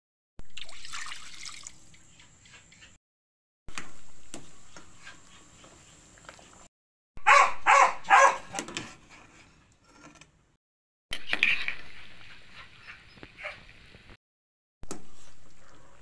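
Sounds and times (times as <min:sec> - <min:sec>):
dog barking: 0:07.2 - 0:08.6.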